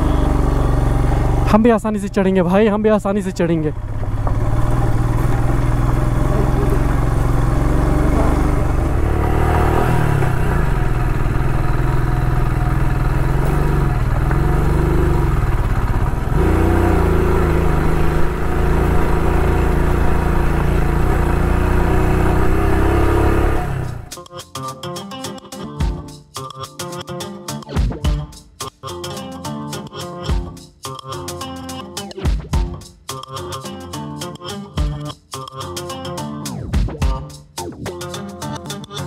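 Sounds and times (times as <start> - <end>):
motorcycle engine running under load: 0.0 - 24.1.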